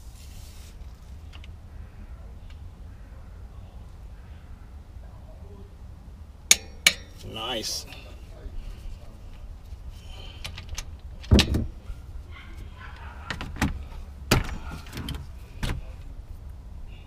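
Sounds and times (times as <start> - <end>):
low steady rumble: 0.0 - 17.0
metal tools knocking: 6.5 - 7.4.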